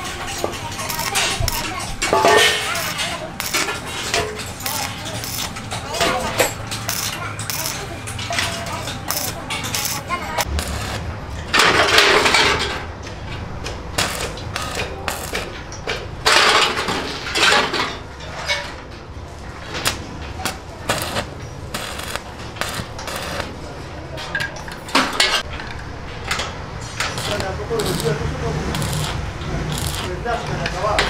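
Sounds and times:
welding arc crackling: 0.0s - 12.1s, 13.6s - 15.8s, 19.8s - 23.8s, 26.8s - 31.0s
sheet steel clinks and knocks: 0.0s - 12.8s.

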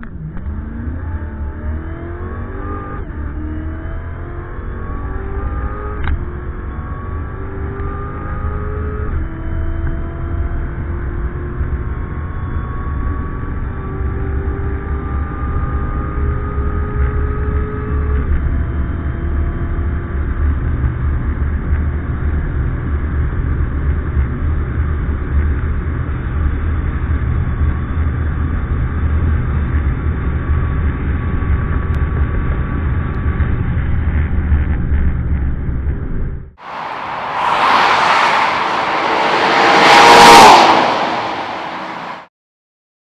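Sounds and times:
car engine at full throttle: 0.0s - 42.3s
heavy low rumble: 31.0s - 42.3s.

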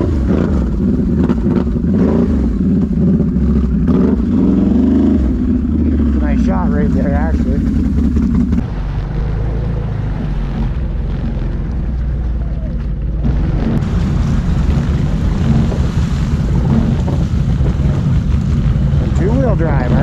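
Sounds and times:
atv engines at low revs: 0.0s - 20.0s
wind noise on microphone: 7.7s - 20.0s.

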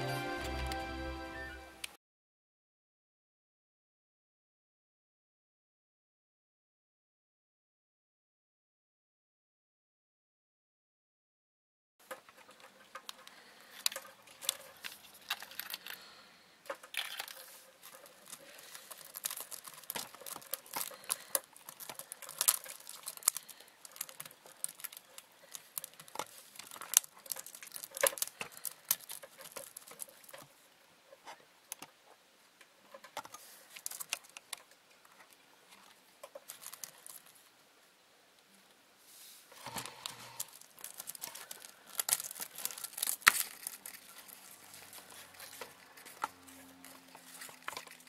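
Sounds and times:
beetle legs scratching on bark: 39.5s - 48.0s.

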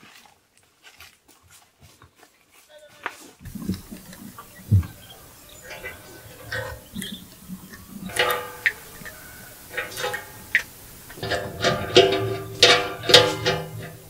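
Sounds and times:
plucked string music: 3.5s - 14.0s.

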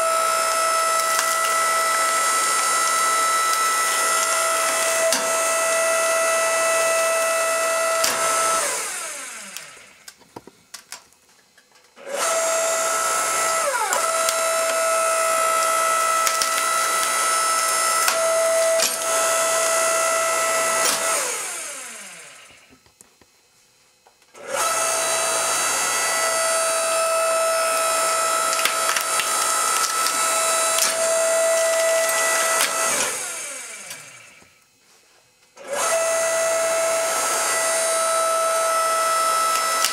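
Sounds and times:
electric motor whining: 0.0s - 10.1s, 12.0s - 22.8s, 24.4s - 34.5s, 35.6s - 39.9s
sharp cracks: 15.6s - 19.2s, 27.7s - 33.0s.

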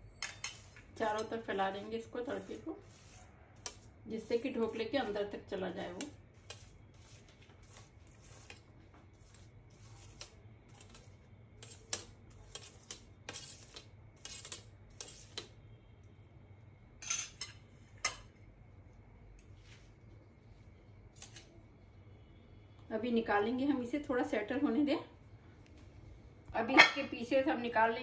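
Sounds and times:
spoon scraping a metal plate: 0.0s - 5.2s, 5.8s - 15.6s.

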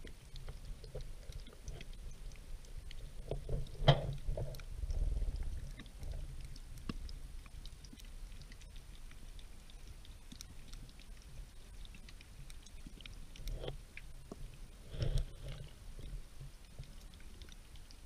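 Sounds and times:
faint underwater clicks: 0.0s - 18.0s
underwater flowing water rumble: 0.0s - 18.0s
underwater knocks: 3.3s - 4.6s.

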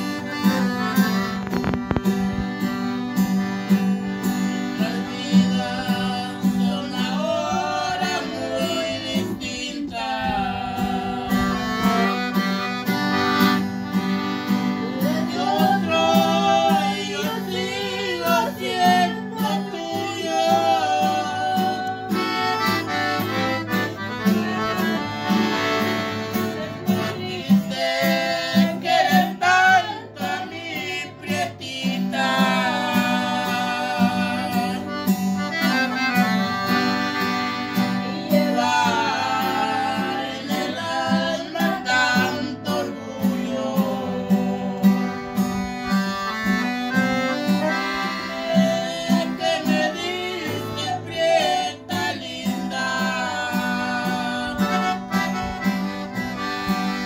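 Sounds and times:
piano accordion melody: 0.0s - 57.0s
strummed acoustic guitar: 0.0s - 57.0s.

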